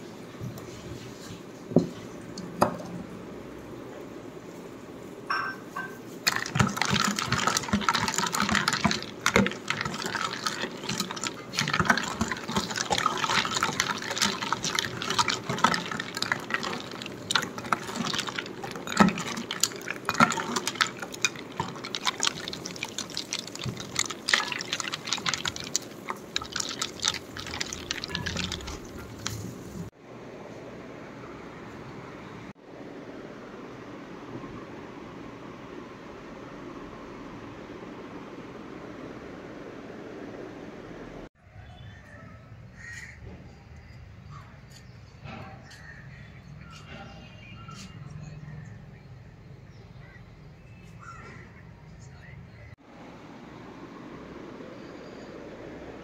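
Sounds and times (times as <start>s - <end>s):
liquid pouring and splashing: 6.2s - 30.0s.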